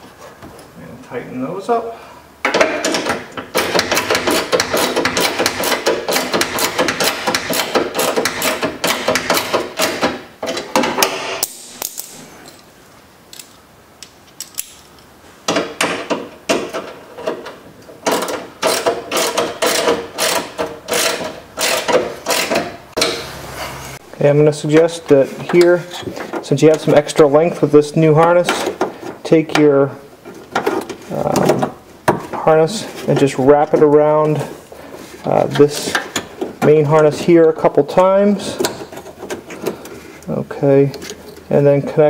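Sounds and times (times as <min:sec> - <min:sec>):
hand ratchet clicking: 0:02.8 - 0:10.1, 0:18.0 - 0:23.1.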